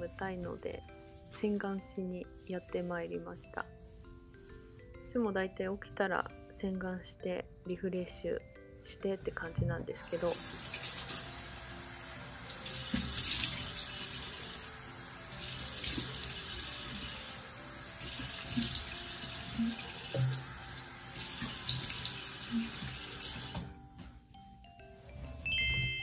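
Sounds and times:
tap water running: 10.0s - 23.7s.

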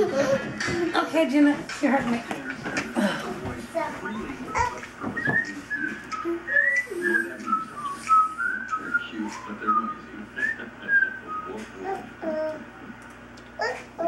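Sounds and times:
person whistling a tune: 5.2s - 11.7s.

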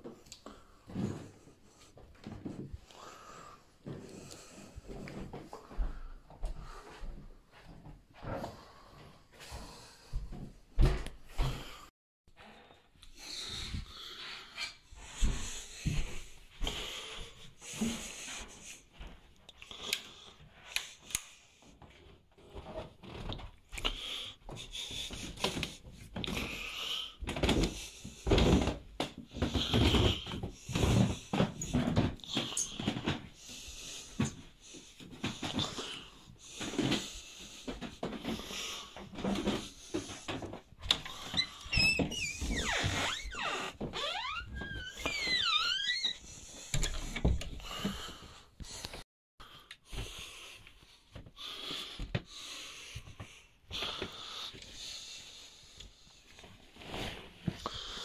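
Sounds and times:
footsteps on carpeted stairs: 0.0s - 11.9s, 14.9s - 19.4s, 24.4s - 49.0s
footsteps on carpet: 4.8s - 11.6s, 15.0s - 16.8s
door hinge creaking: 41.4s - 46.2s.

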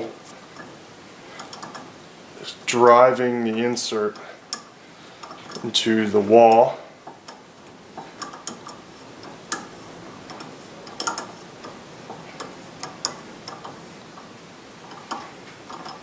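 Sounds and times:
tap handle metallic clicks: 1.4s - 1.9s, 3.5s - 5.7s, 6.5s - 13.8s.

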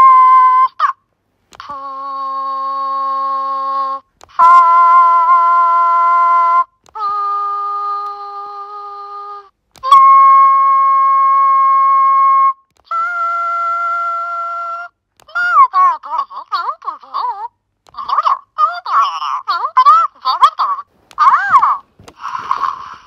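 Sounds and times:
electronic toy calls: 3.0s - 9.2s, 9.8s - 12.2s.

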